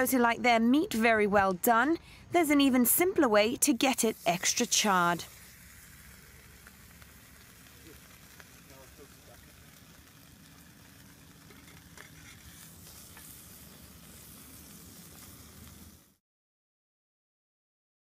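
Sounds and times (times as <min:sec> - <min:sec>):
steak sizzling in lava: 0:02.7 - 0:16.2.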